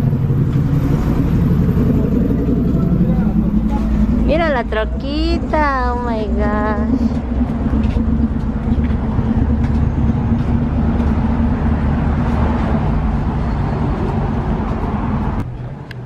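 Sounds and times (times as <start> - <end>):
truck engine rumbling: 0.0 - 16.0.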